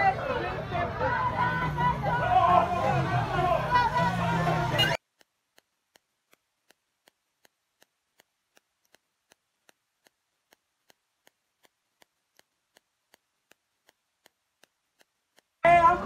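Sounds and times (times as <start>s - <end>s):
faint even ticking: 4.8s - 16.0s.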